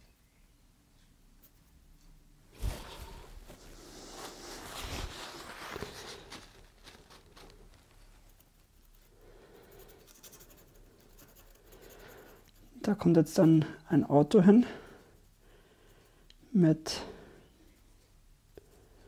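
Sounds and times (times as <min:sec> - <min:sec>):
paintbrush scratching strokes: 0:01.4 - 0:16.3.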